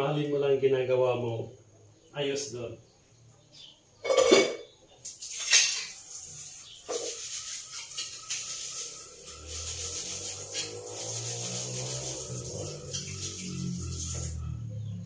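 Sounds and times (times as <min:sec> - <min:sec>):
metal kitchenware clattering: 0:04.0 - 0:06.1
steady hiss: 0:05.0 - 0:14.6.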